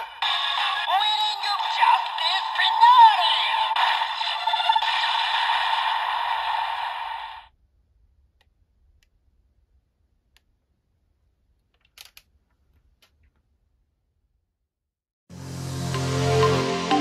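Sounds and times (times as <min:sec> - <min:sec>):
toy electronic voice and music: 0:00.0 - 0:07.4
plastic clicks from handling toy: 0:11.7 - 0:12.3.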